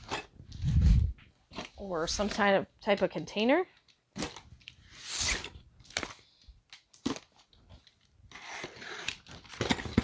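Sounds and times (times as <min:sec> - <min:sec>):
box cutter slicing packing tape: 0:04.2 - 0:05.6, 0:08.3 - 0:10.0
cardboard rustling: 0:07.0 - 0:10.0.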